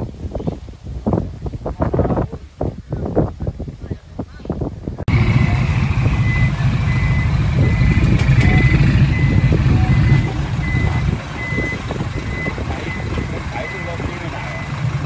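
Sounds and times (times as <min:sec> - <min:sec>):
diesel engine rumble: 0:00.0 - 0:15.0
truck reverse alarm beeping: 0:05.1 - 0:15.0.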